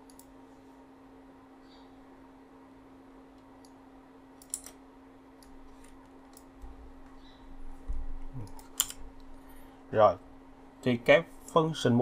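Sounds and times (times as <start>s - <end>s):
computer mouse clicks: 0.0s - 0.3s, 4.4s - 4.8s, 5.4s - 7.2s
faint steady hum: 0.0s - 12.0s.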